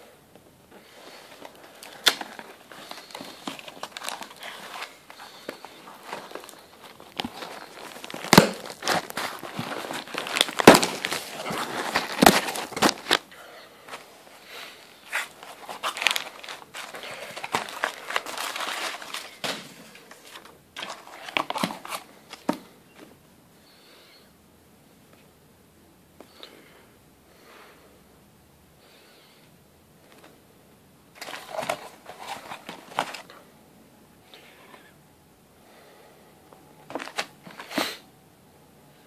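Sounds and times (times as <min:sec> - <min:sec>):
paper crinkling: 0:01.3 - 0:13.3, 0:15.0 - 0:22.6, 0:31.2 - 0:33.4
cardboard box being handled: 0:02.1 - 0:13.2, 0:15.1 - 0:22.6.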